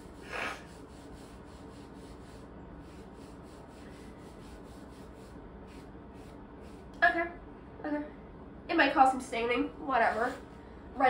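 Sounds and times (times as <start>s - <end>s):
wipe scrubbing skin: 0.0s - 6.9s.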